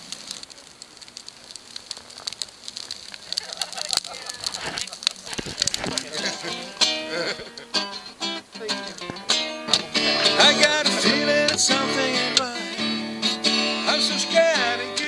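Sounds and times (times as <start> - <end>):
acoustic guitar: 3.1 - 15.0
person singing: 8.5 - 15.0.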